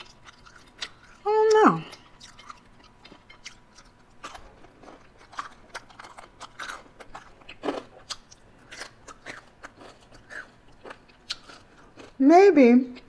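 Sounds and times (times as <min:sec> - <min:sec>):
person chewing crunchy food: 0:00.0 - 0:12.2.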